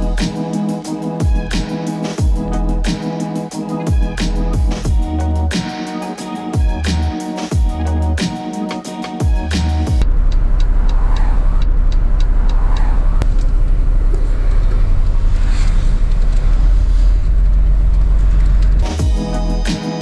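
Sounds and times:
bus engine and road rumble: 10.0 - 19.7.

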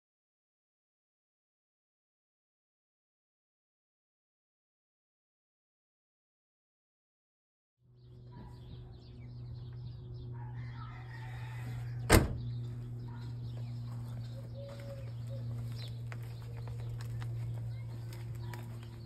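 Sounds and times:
low mechanical hum: 7.8 - 19.0.

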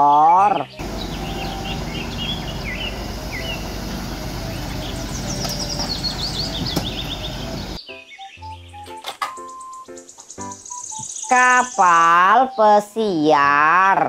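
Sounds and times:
birds chirping: 0.0 - 13.6
excavator diesel engine running: 0.8 - 7.8.

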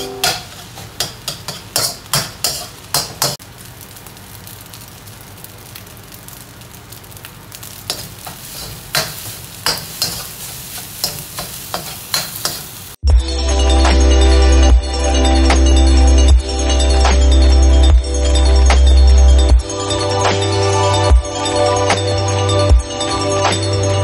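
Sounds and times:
metal spatula scraping a wok: 0.0 - 3.4, 7.9 - 12.9
frying sizzle: 0.0 - 13.0.

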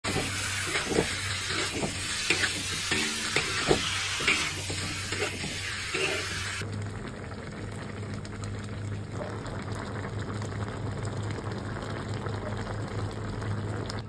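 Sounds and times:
spatula scraping and knocking a pan: 0.0 - 6.6
food sizzling in a wok: 0.0 - 6.7.

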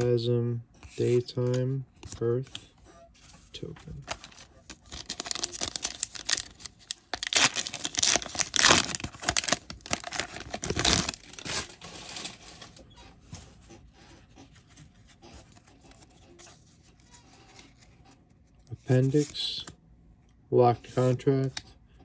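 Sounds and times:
handling card stack: 0.8 - 19.8
foil pack tearing and crinkling: 4.1 - 12.5.

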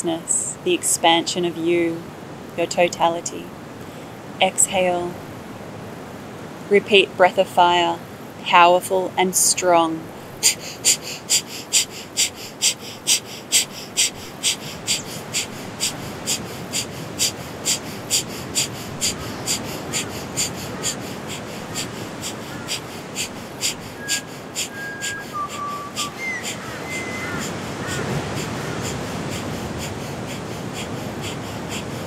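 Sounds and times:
bird calls: 10.4 - 32.0
forceful nasal exhalations: 10.4 - 32.0.

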